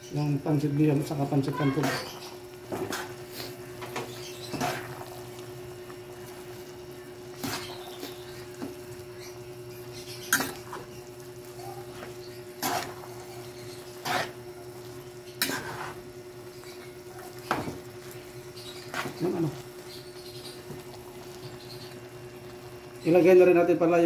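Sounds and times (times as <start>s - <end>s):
steady low hum: 0.0s - 24.0s
utensils scraping metal wok: 1.8s - 3.6s, 4.4s - 5.1s, 7.4s - 8.2s, 11.9s - 14.5s, 15.3s - 16.1s.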